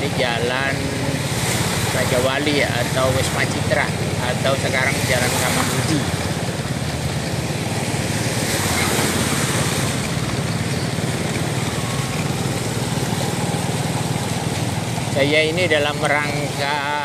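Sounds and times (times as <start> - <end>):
motor scooter engine running: 0.0 - 17.0
wind: 0.0 - 17.0.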